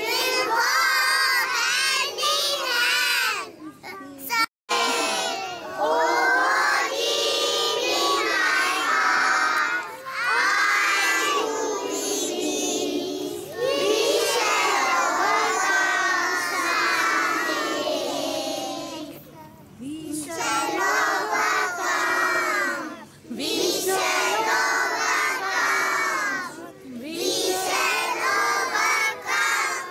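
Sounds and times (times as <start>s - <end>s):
children singing in unison: 0.0s - 3.4s, 4.7s - 19.2s, 20.3s - 29.9s.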